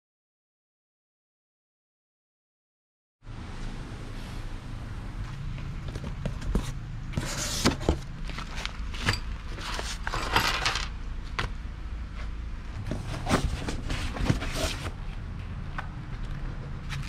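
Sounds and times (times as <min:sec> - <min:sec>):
small metal parts clinking: 0:08.9 - 0:11.0.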